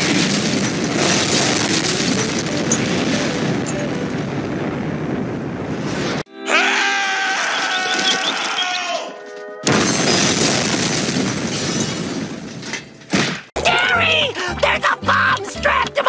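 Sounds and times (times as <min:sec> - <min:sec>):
cartoon explosion: 0:00.0 - 0:06.2
held tone: 0:01.9 - 0:04.4.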